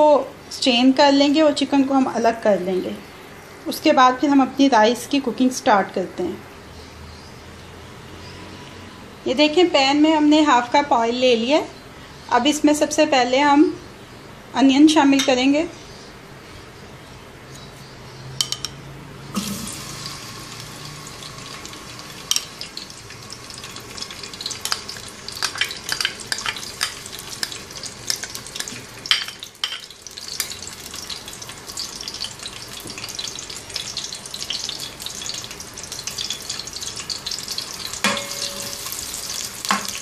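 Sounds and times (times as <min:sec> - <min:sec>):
onions sizzling in oil: 0:19.3 - 0:40.0
spoon stirring in pot: 0:24.6 - 0:31.1, 0:37.5 - 0:40.0.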